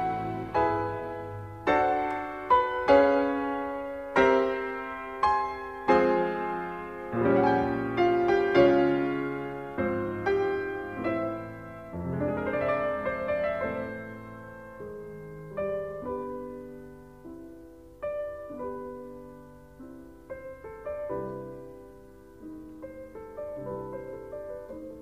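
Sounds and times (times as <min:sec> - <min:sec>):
piano music: 0:00.0 - 0:25.0.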